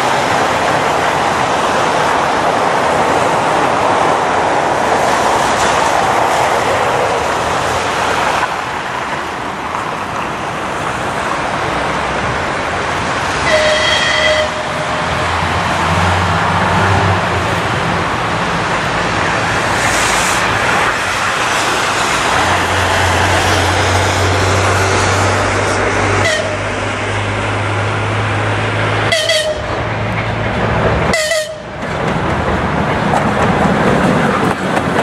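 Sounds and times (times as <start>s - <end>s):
diesel locomotive rumbling: 0.0s - 35.0s
train horn blast: 13.4s - 15.4s, 26.2s - 26.7s, 29.1s - 29.8s, 31.1s - 31.7s.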